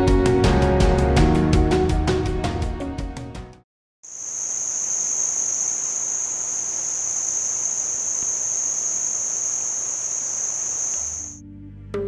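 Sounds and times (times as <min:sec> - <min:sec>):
insect high-pitched drone: 0:04.0 - 0:11.4.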